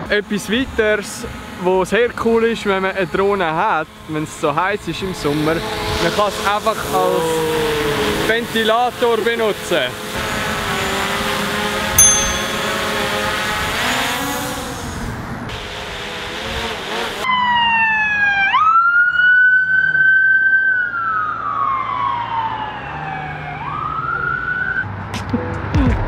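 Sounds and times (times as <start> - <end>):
ambulance siren wailing: 17.3 - 24.8.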